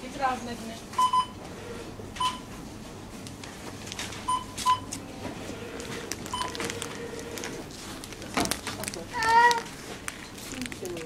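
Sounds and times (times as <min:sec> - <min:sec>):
low shop background noise: 0:00.0 - 0:11.0
barcode scanner beeps: 0:01.0 - 0:01.4, 0:02.2 - 0:02.5, 0:04.3 - 0:05.0, 0:06.3 - 0:07.4.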